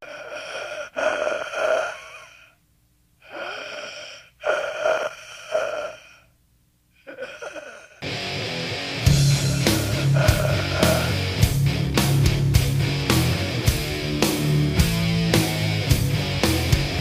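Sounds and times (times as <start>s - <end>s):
processed gasping breaths: 0.0s - 2.6s, 3.2s - 6.4s, 7.0s - 8.1s, 9.1s - 11.6s
heavy distorted guitar music: 8.0s - 17.0s.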